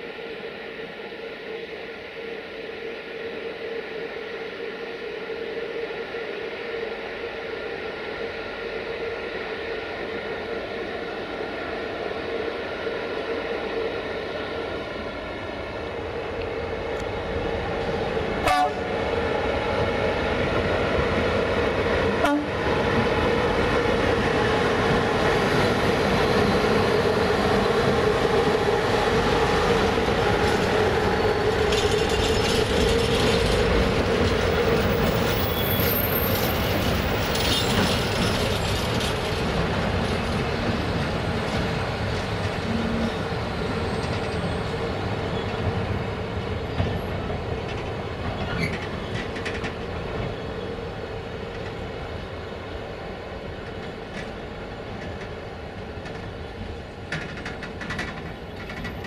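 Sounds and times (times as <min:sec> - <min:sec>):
train wheels rumbling on rails: 0:08.4 - 0:59.0
wheels clickety-clack: 0:31.6 - 0:40.8, 0:46.8 - 0:50.4, 0:57.0 - 0:59.0.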